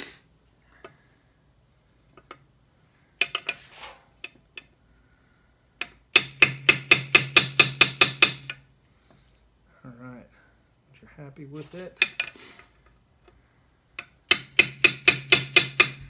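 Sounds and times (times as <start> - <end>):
small hammer tapping metal: 5.8 - 8.6, 13.2 - 16.0.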